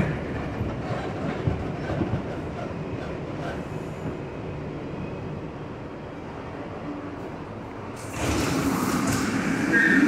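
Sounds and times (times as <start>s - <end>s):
train wheel clacks: 0.0s - 3.7s
train wheels rumbling on rails: 0.0s - 10.0s.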